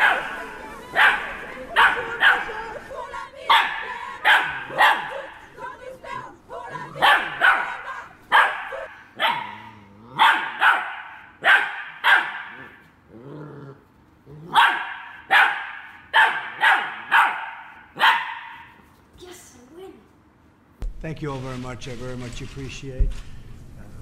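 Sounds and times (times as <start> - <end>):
young dog yapping: 7.0 - 12.9, 14.4 - 18.7
dog growling: 9.3 - 10.3, 12.6 - 14.6.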